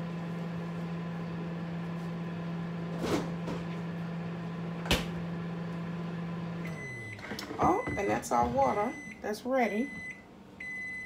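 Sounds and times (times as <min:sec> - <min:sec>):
microwave oven humming: 0:00.0 - 0:11.0.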